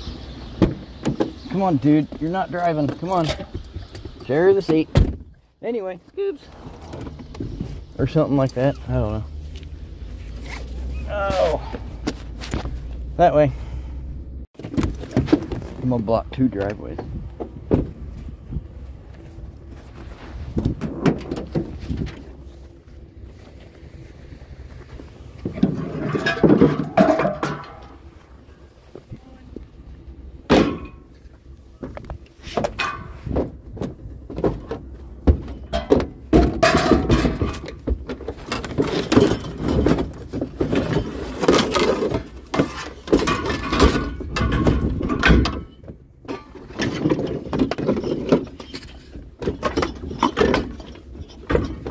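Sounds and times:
objects thudding and clattering: 14.6s - 18.7s, 19.8s - 22.6s, 24.8s - 29.1s, 30.4s - 51.9s.

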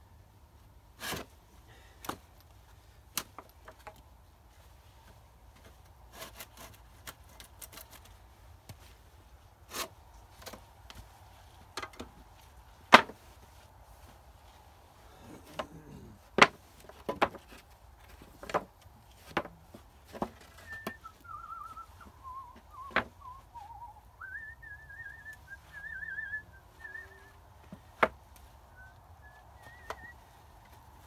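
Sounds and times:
warbling whistle: 20.6s - 27.4s.

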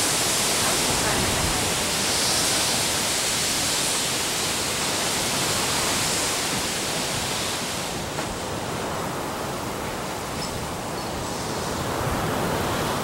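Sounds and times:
hurricane wind and rain: 0.0s - 13.0s.

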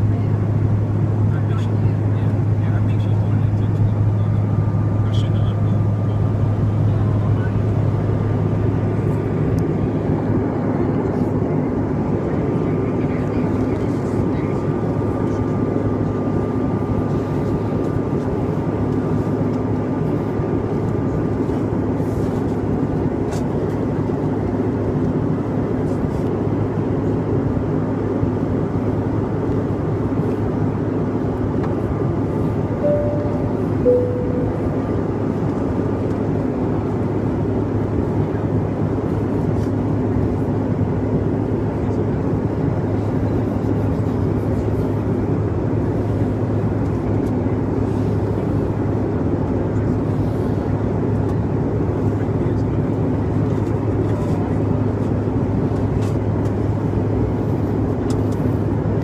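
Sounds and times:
airliner cabin noise: 0.0s - 59.0s
two-note falling cabin chime: 32.8s - 34.8s.

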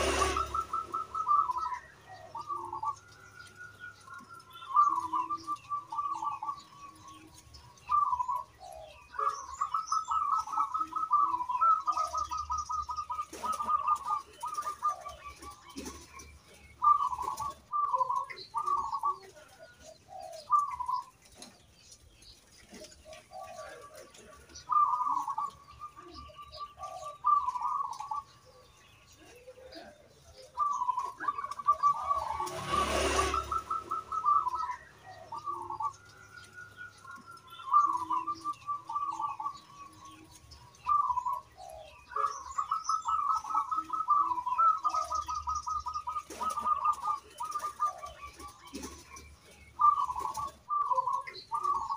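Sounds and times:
dove cooing: 0.0s - 51.9s.

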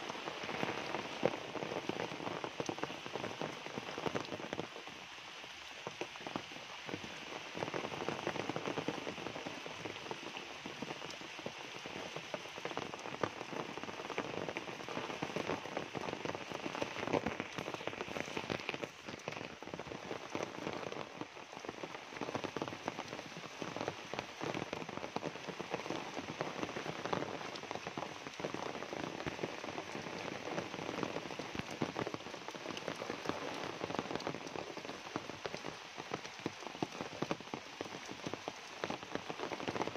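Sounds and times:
rain splashing into puddles: 0.0s - 39.9s.

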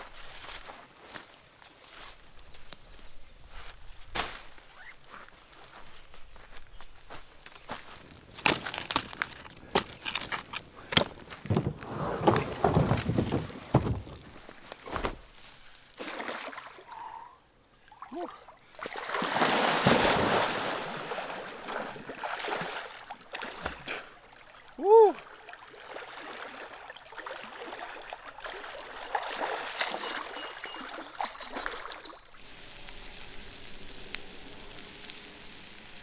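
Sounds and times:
water splashing and sloshing: 7.8s - 17.1s, 17.8s - 33.3s.

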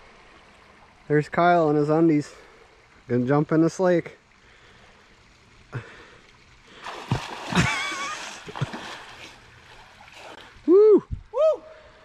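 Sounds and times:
water spattering: 6.7s - 10.6s
person splashing into water: 6.8s - 10.6s.

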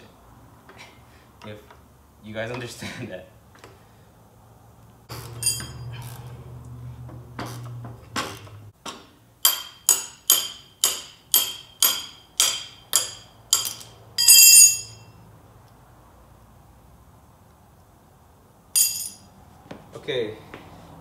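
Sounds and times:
ringing metal clang: 5.4s - 6.0s, 9.4s - 15.2s, 18.8s - 19.3s
wrench striking metal nut: 8.3s - 15.0s, 18.8s - 19.2s.

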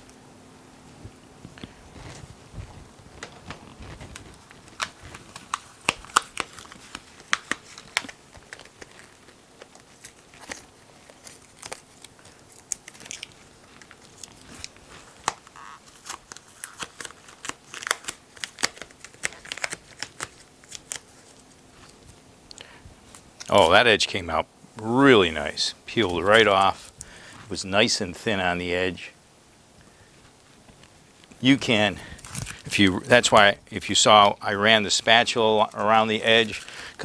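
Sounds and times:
tape peeling off: 1.4s - 22.1s, 32.0s - 33.2s
cured epoxy cracking and snapping: 3.2s - 21.0s.

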